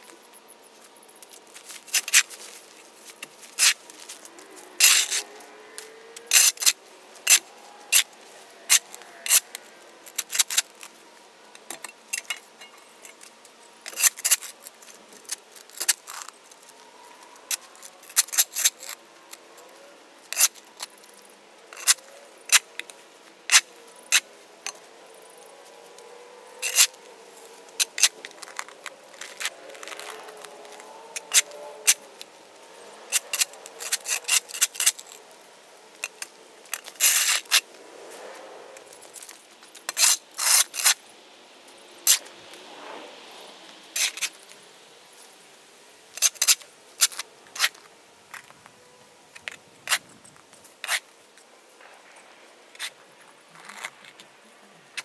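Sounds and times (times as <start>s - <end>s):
shovel scraping hard surface: 3.2s - 10.8s, 26.5s - 32.0s, 32.8s - 35.2s, 39.2s - 41.0s, 50.8s - 51.0s.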